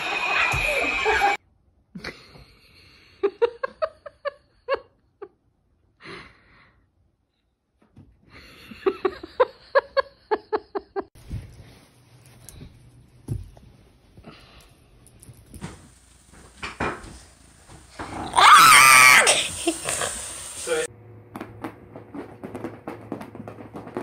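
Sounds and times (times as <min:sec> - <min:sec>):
person laughing: 0:08.4 - 0:11.1.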